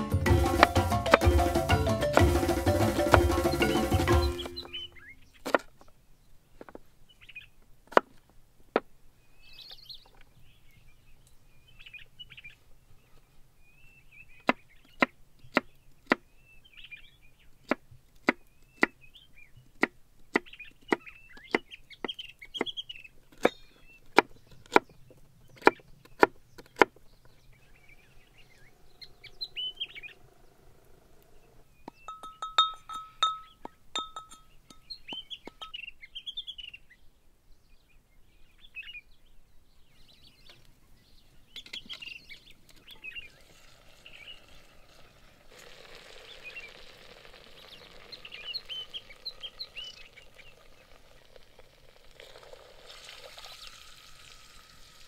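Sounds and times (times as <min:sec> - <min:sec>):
brass mortar ringing: 0:00.0 - 0:05.0, 0:32.0 - 0:35.8
small birds chirping: 0:00.0 - 0:55.0.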